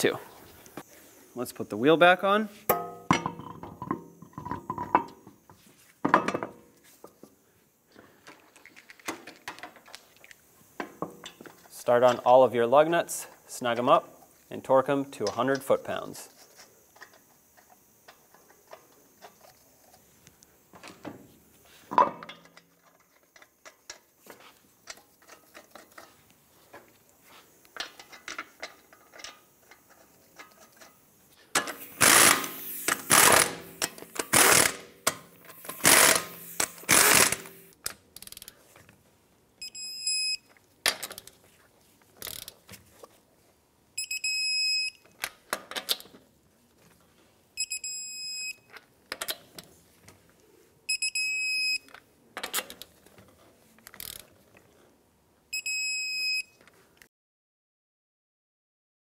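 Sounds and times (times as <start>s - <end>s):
power tool bursts: 31.6s - 37.7s
wrench and socket clicks: 31.6s - 38.6s, 42.2s - 42.6s, 53.9s - 54.3s
short high beeps: 44.0s - 45.0s, 55.5s - 56.5s.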